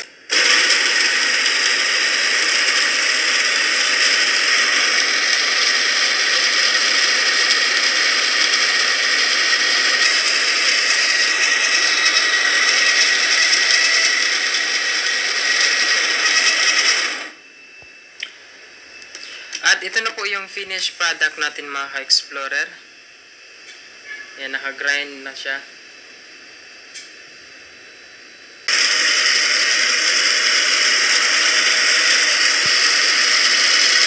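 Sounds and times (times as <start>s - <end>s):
coffee grinder whirring: 0.0s - 18.3s, 28.7s - 34.0s.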